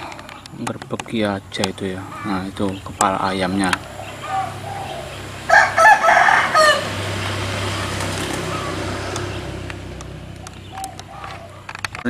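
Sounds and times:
rooster crowing: 0:03.5 - 0:09.6.

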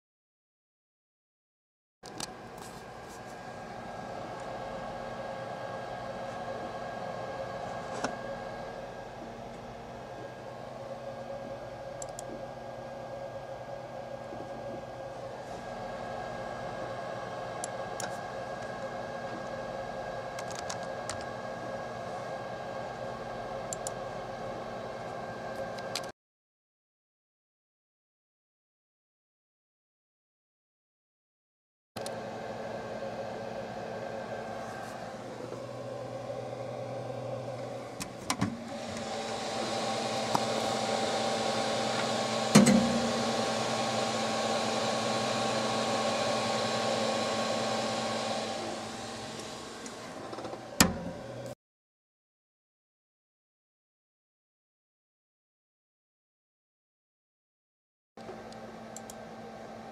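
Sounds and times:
fan hum: 0:02.1 - 0:26.1, 0:32.0 - 0:51.6
keyboard clicks: 0:12.0 - 0:12.3, 0:20.4 - 0:21.3
printer motors whirring: 0:32.0 - 0:51.5.

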